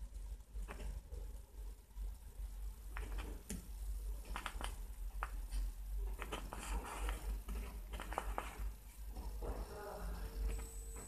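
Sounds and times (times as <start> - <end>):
pen scratching on paper: 6.0 - 8.7.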